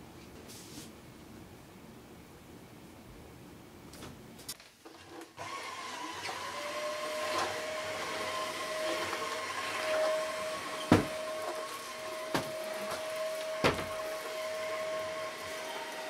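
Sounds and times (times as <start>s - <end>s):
vacuum cleaner motor whine: 5.4s - 16.0s.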